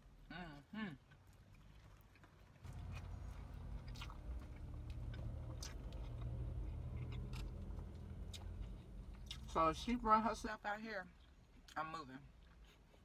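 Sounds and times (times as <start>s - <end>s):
person chewing food: 1.0s - 9.6s, 11.1s - 13.0s
steady low rumble: 2.6s - 10.6s.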